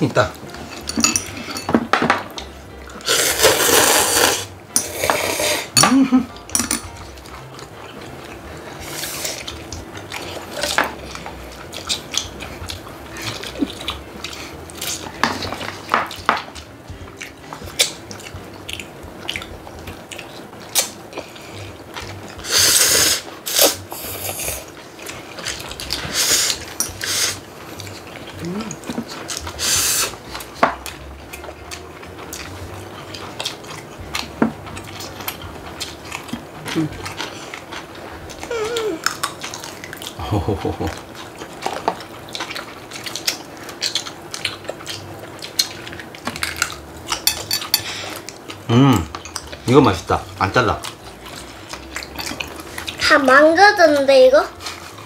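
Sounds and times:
people slurping noodles: 3.0s - 5.8s, 22.4s - 24.7s, 25.4s - 27.4s, 28.3s - 30.2s.

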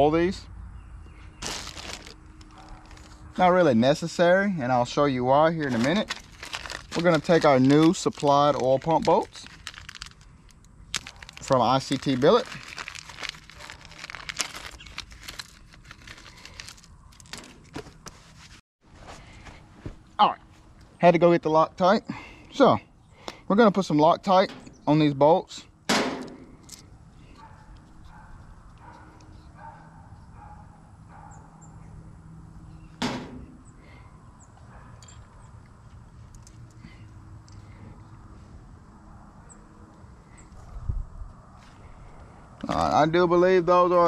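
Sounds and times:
plastic packet crinkling and tearing: 1.4s - 3.2s, 5.6s - 17.8s
handling small parts: 5.6s - 18.4s, 26.2s - 26.9s.

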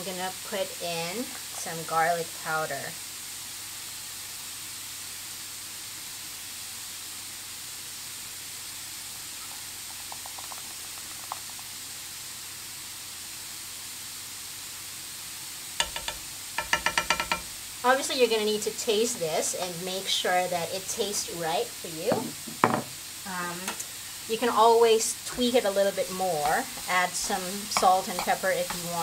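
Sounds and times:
rice sizzling in a frying pan: 0.0s - 29.0s
light ticks of powder shaken: 9.4s - 11.8s
spatula clicking in pan: 15.8s - 17.5s.

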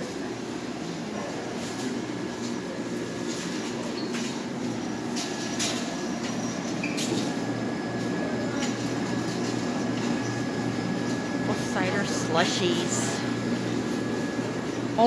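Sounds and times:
machine hum: 4.7s - 15.0s.

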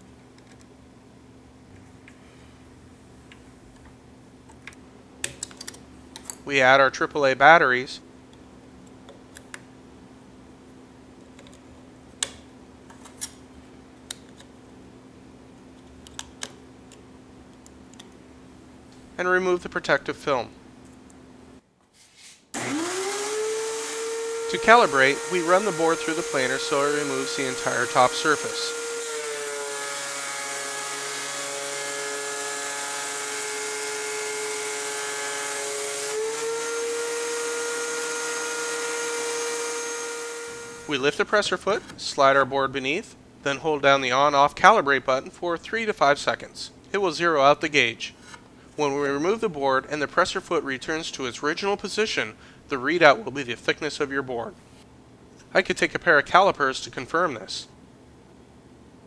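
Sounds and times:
faint steady hum: 0.0s - 22.0s, 24.0s - 59.0s
thickness planer whining: 22.6s - 41.0s.

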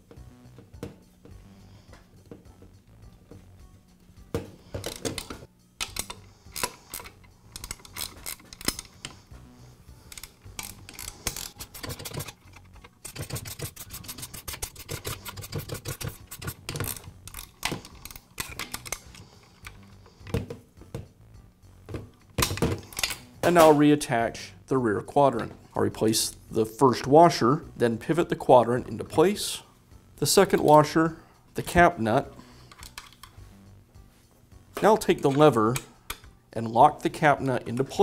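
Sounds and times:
faint background music: 0.0s - 38.0s
metal clicks and taps: 32.7s - 33.3s.

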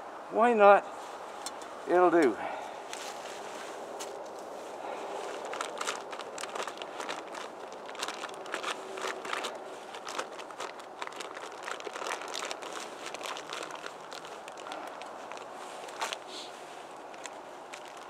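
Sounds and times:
steady background hiss: 0.0s - 5.5s
crinkling crackles from handling: 1.0s - 18.0s.

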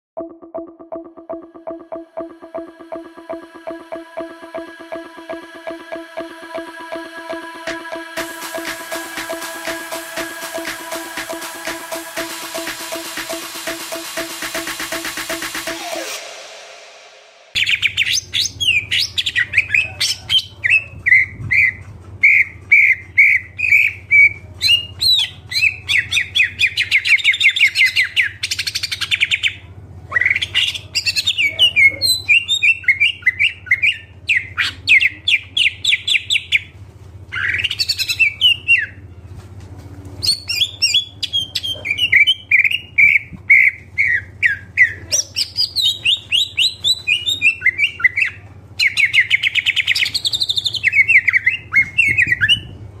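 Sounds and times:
steady low hum: 0.7s - 17.9s
bird chirping and trilling: 37.3s - 39.0s, 40.2s - 52.7s.

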